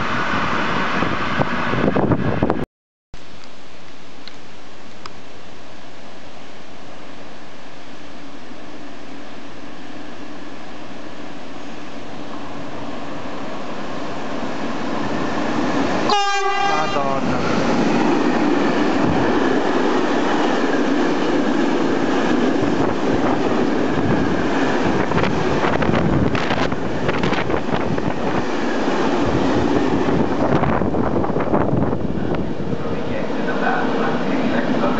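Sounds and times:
train wagons rumbling on rails: 0:11.6 - 0:34.9
locomotive horn blast: 0:16.0 - 0:17.4.

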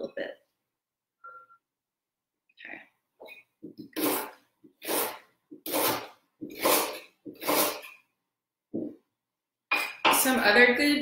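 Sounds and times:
knife cutting ginger on board: 0:03.9 - 0:07.9.

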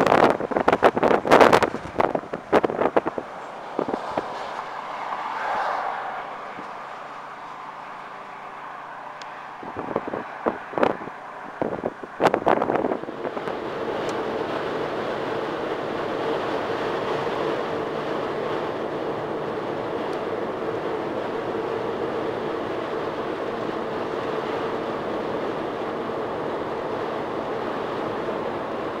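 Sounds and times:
tyre roar: 0:03.4 - 0:11.4.

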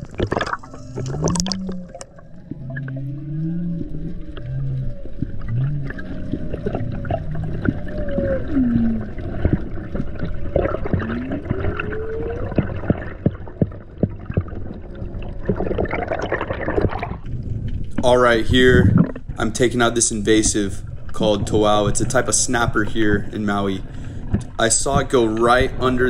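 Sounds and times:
whale song: 0:00.0 - 0:19.4
low underwater rumble: 0:00.0 - 0:26.0.

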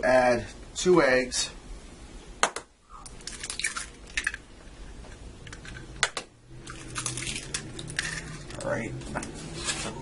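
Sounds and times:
egg shell cracking: 0:02.4 - 0:04.5, 0:05.4 - 0:08.7
eggshell clicking and crunching: 0:02.4 - 0:04.5, 0:05.5 - 0:08.7.

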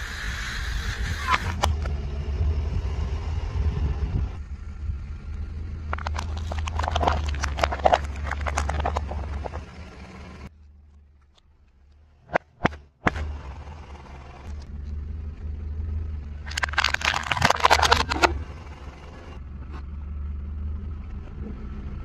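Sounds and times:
car engine running: 0:00.6 - 0:22.0
tyre crushing plastic bowls: 0:05.9 - 0:09.6, 0:16.5 - 0:18.4.

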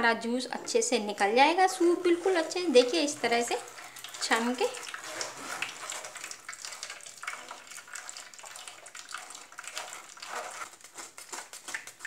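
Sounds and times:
liquid sloshing into bowl: 0:01.2 - 0:12.0
metal spoon scraping strainer: 0:01.5 - 0:07.7, 0:09.3 - 0:11.8.

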